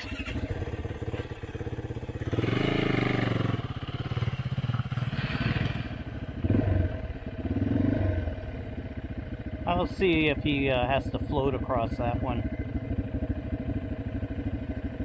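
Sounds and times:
dirt bike engine idling: 0.0 - 15.0
dirt bike riding through mud: 2.2 - 8.2.

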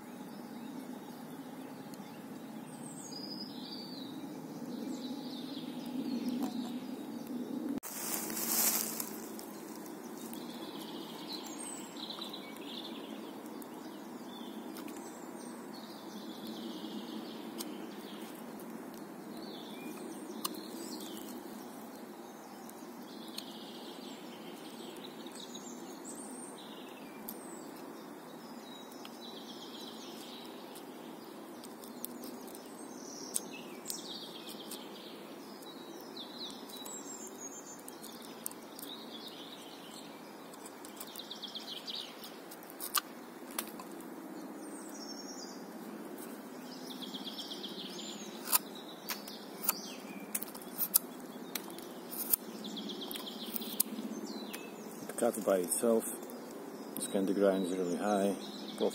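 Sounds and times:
songbirds chirping: 0.0 - 58.9
knife shaving branch clicks: 39.9 - 41.4, 42.2 - 44.1, 48.3 - 54.6.

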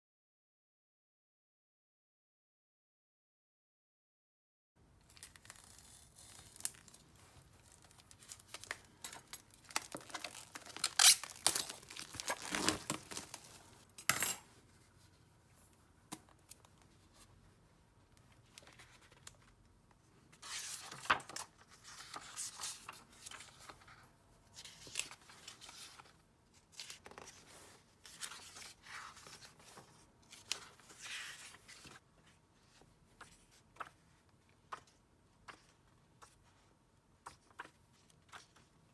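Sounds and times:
packaging torn with crinkling rustle: 5.0 - 13.8
paper pages turning: 5.0 - 13.9, 18.2 - 19.6, 20.3 - 38.8
knife cutting packaging: 9.1 - 13.6
notebook cover opening: 9.7 - 13.5.

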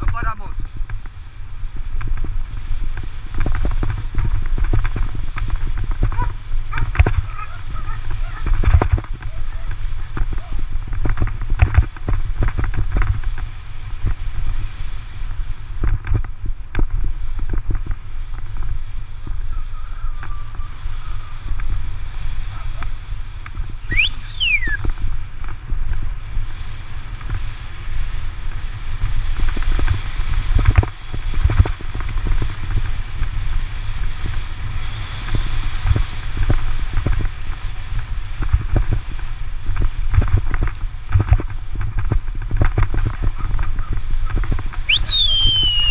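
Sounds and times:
wind rumble on microphone: 0.0 - 45.9
camera rattling and knocking: 8.6 - 9.3.

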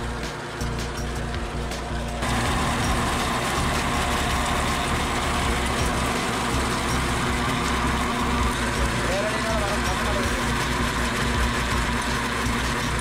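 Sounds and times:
rotary weeder churning soil: 0.0 - 13.0
tractor engine under load: 0.0 - 13.0.

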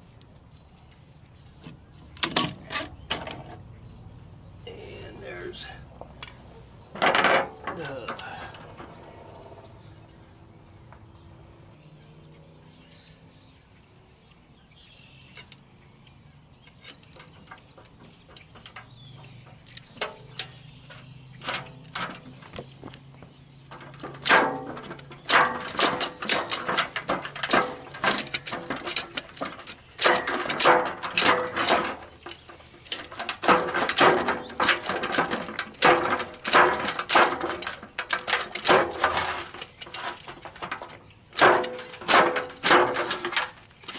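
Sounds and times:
pry bar clanking on metal: 2.2 - 3.6, 6.9 - 9.0, 16.6 - 22.5, 23.6 - 43.9.

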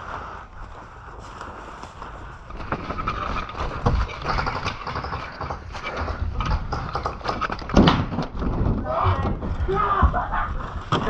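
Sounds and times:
footsteps through wet grass and mud: 0.0 - 3.8
clothing and gear rustling: 0.0 - 7.6.

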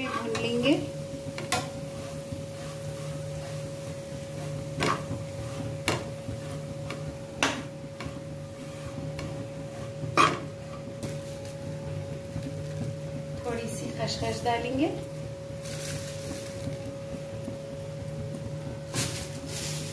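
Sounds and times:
metal spatula stirring in a pan: 0.0 - 0.6, 1.4 - 10.9
steady hum: 0.0 - 19.9
spatula knocking against pan: 10.1 - 10.5.

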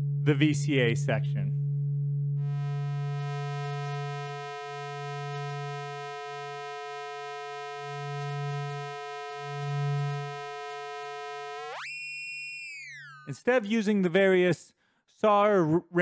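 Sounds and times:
ring-modulated synth tone: 1.7 - 13.3.

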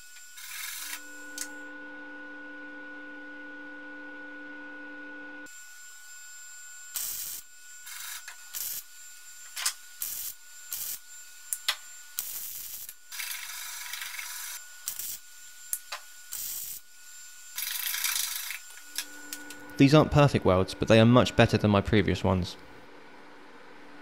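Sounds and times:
welder arc crackling: 6.9 - 20.0.

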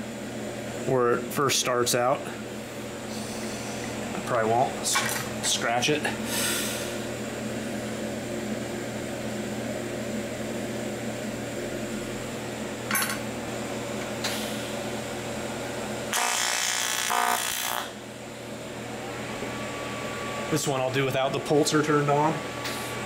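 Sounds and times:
machine hum: 0.0 - 23.0
welding arc buzzing: 16.0 - 18.1.

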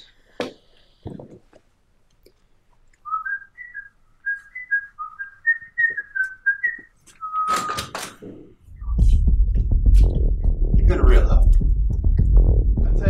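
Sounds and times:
person whistling a tune: 3.0 - 8.0.

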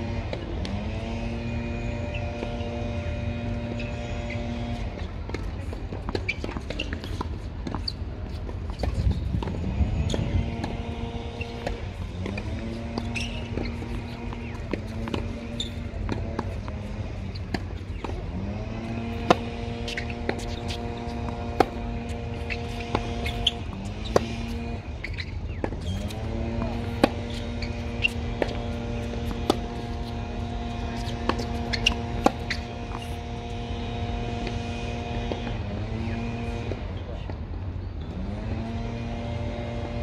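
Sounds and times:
droning engine-like hum: 0.0 - 40.0
tennis ball struck by rackets: 8.4 - 36.8
motor pitch rising: 9.4 - 36.8.

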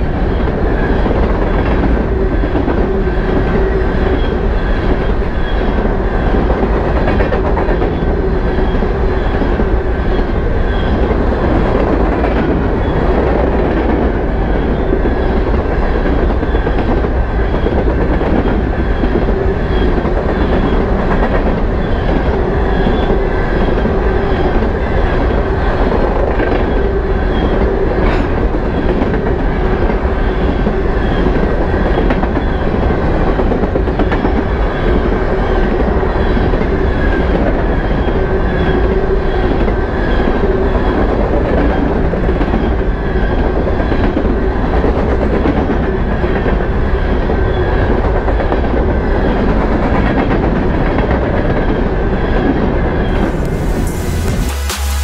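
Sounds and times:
train wheels rumbling on rail: 0.0 - 55.0
electronic music: 53.1 - 55.0.

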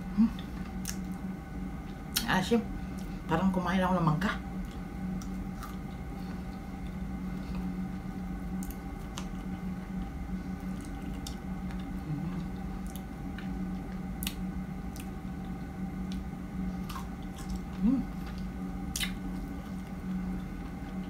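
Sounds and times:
low steady hum: 0.0 - 21.0
wet chewing mouth sounds: 16.8 - 21.0.

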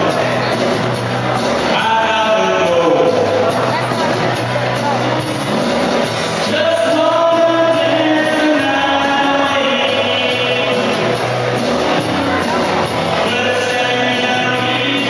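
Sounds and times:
amplified backing music with beat: 0.0 - 15.0
man singing into microphone: 1.7 - 3.4, 6.4 - 11.6, 12.8 - 15.0.

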